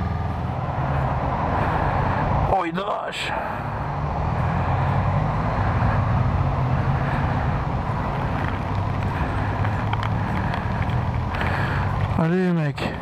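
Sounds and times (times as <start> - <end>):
tyre noise on wet road: 0.0 - 13.0
motorcycle engine running: 3.6 - 12.4.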